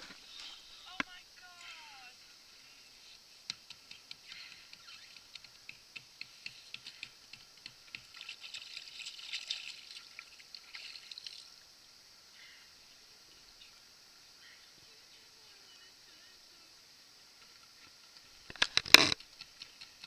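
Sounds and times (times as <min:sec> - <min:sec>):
water splashing and dripping: 0:06.8 - 0:11.7.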